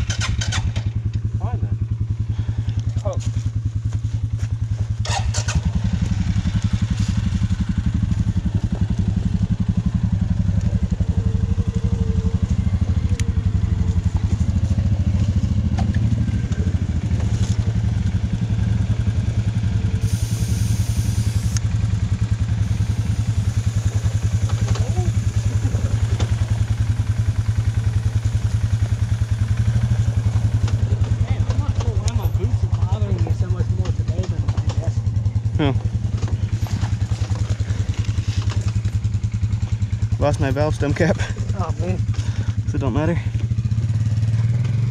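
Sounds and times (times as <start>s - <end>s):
dirt bike engine idling: 0.0s - 44.9s
air hissing from tire valve: 19.9s - 21.7s, 22.4s - 25.8s.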